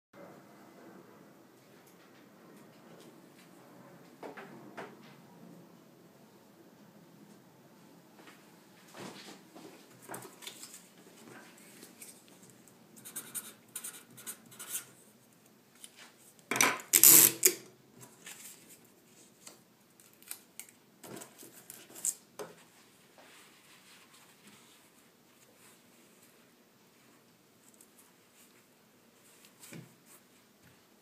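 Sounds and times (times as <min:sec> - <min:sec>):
paper rustling and scratching: 0:10.1 - 0:14.9, 0:21.1 - 0:26.4.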